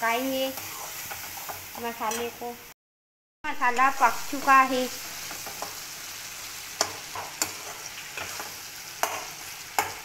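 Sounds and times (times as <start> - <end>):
masala sizzling in oil: 0.0 - 2.8, 3.5 - 10.0
metal spatula knocking and scraping pan: 6.8 - 10.0.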